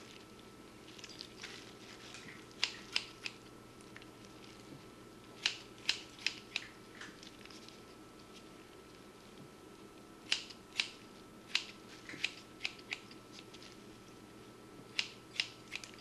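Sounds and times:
wet handling sounds: 0.0 - 4.8
scissors snipping tissue: 1.0 - 3.4, 5.4 - 7.2.

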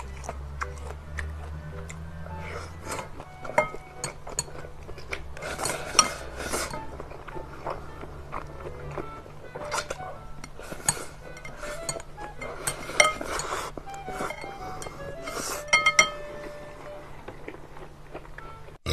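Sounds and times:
slurping noodles: 2.3 - 3.2, 5.4 - 6.8, 12.4 - 15.7
chopsticks clinking on glass bowl: 3.4 - 4.7, 9.7 - 13.6, 15.7 - 16.2.

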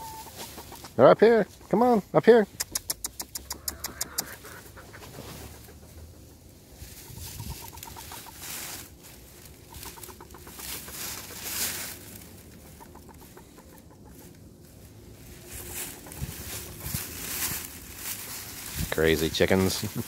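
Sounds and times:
dry leaves rustling: 0.0 - 1.0, 6.6 - 20.0
hen clucking: 0.0 - 20.0.

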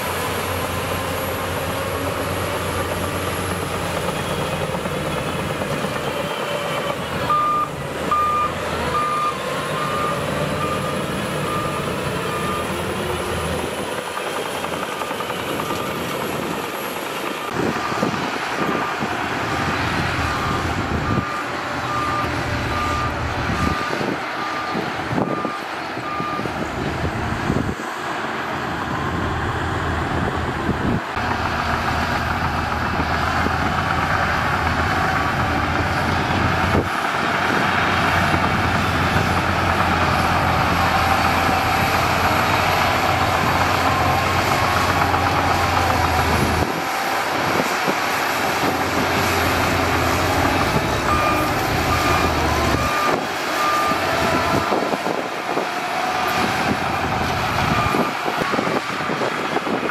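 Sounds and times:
bulldozer diesel engine running: 0.0 - 59.9
reversing alarm beeping: 0.8 - 26.6, 49.7 - 55.2, 56.7 - 58.8.

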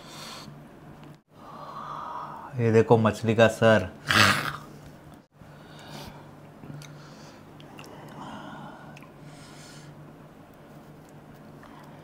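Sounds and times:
low steady hum: 0.0 - 12.0
faint breathing: 1.3 - 2.5, 5.4 - 10.0.

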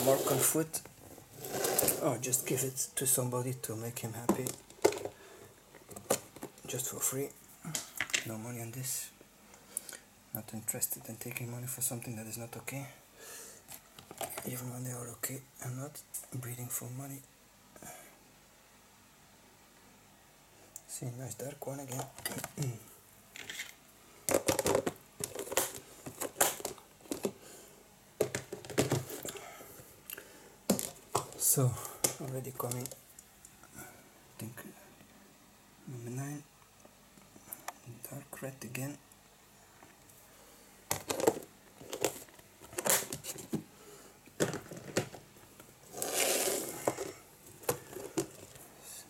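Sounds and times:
plastic tubs clicking and knocking: 4.2 - 5.2, 23.4 - 27.4, 28.2 - 29.4, 30.7 - 33.0, 40.9 - 43.7, 44.3 - 48.6
rustling crinkle: 22.0 - 27.4, 40.9 - 43.6, 44.4 - 48.8.

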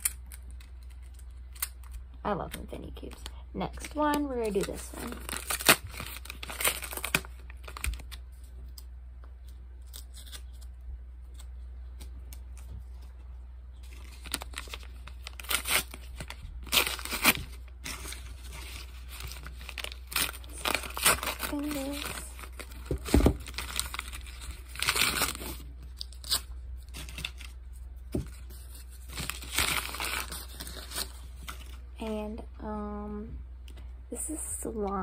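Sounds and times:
package tearing and crinkling: 4.4 - 8.2, 9.8 - 10.7, 13.8 - 27.6, 28.2 - 31.8.

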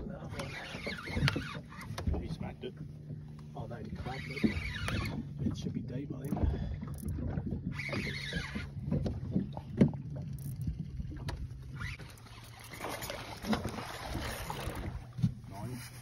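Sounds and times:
low hum: 0.0 - 16.0
fishing reel cranking: 0.3 - 2.0, 4.0 - 5.3, 6.2 - 8.8, 10.1 - 13.5.

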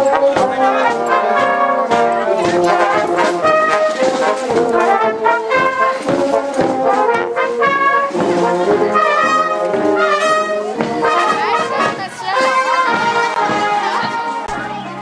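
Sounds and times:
marching brass band playing: 0.0 - 15.0.

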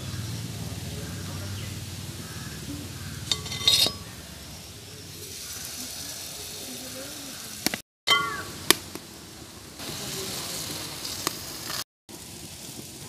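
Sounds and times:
bread frying in oil: 0.0 - 3.3, 4.0 - 13.0.

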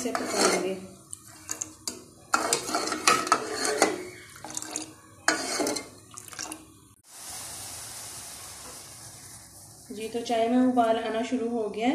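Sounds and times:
ladle scraping metal saucepan: 0.0 - 6.0.

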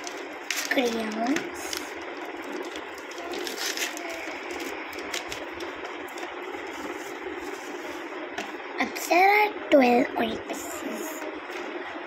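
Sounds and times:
plastic wrapping crinkling: 0.0 - 7.8.

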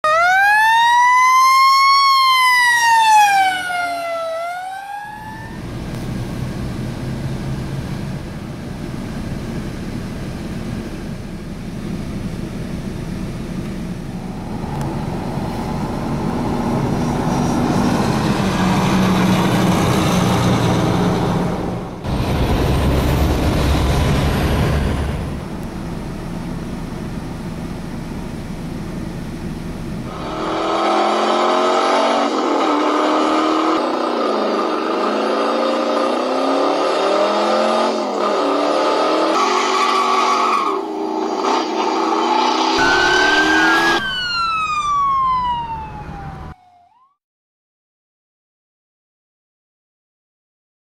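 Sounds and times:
fire truck siren wailing: 0.0 - 5.9, 14.2 - 25.7, 30.1 - 47.2
vehicle engine accelerating: 5.3 - 12.4, 13.1 - 28.2, 29.4 - 46.6
diesel engines idling: 5.6 - 30.3.

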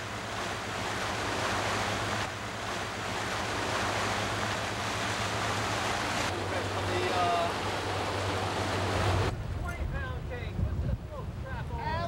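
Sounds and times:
boat engine drone: 0.0 - 9.6
wake water rushing: 0.0 - 12.0
wind on microphone: 7.9 - 12.0.

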